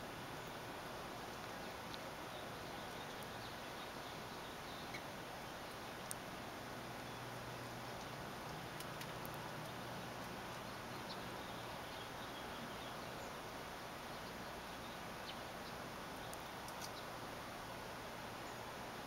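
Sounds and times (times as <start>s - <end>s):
background hiss: 0.0s - 19.0s
faint high clicks or chirps: 16.2s - 17.1s.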